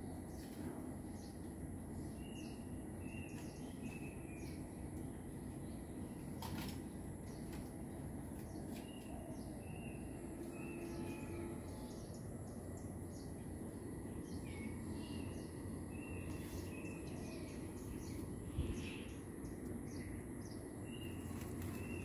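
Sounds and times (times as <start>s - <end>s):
low background hum: 0.0s - 22.0s
bird chirping: 2.0s - 4.8s, 8.4s - 22.0s.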